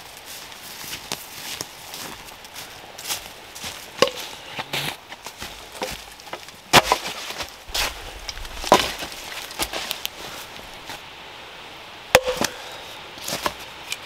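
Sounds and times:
branches knocking together: 3.1 - 11.0.

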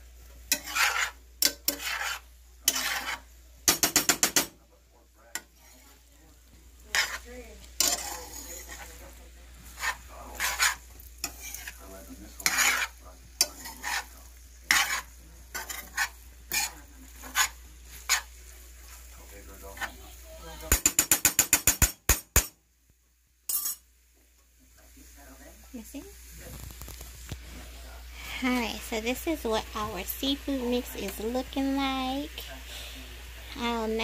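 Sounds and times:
food sizzling faintly: 0.0 - 34.0
metal spoon scraping frying pan: 0.3 - 4.5, 5.3 - 6.1, 6.8 - 19.1, 23.5 - 23.8, 29.8 - 31.6.

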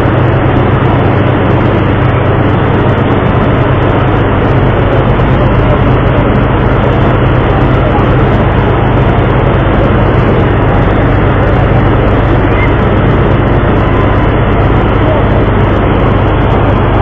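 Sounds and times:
boat engine drone: 0.0 - 17.0.

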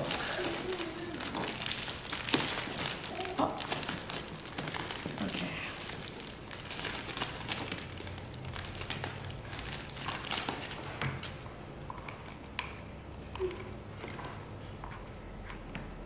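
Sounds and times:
plastic packaging crinkling: 0.0 - 11.4.

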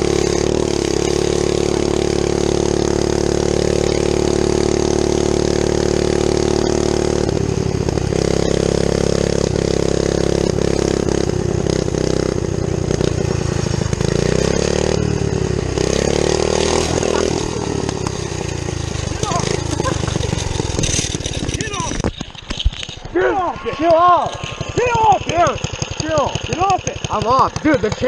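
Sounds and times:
small engine running: 0.0 - 28.0.

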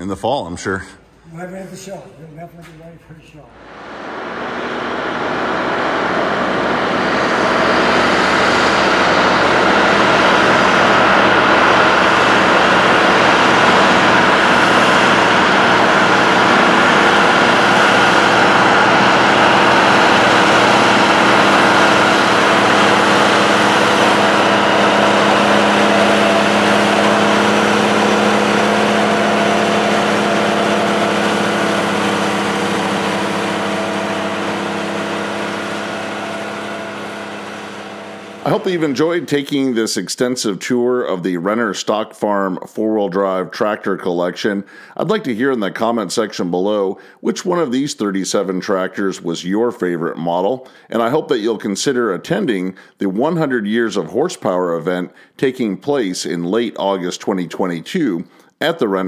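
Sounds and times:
tractor diesel engines under load: 3.7 - 43.7.

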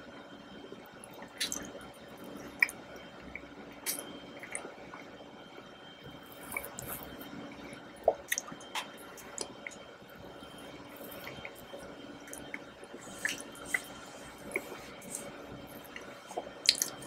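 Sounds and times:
wet mouth eating sounds: 1.4 - 1.7, 3.8 - 4.6, 6.4 - 7.2, 12.3 - 17.0.

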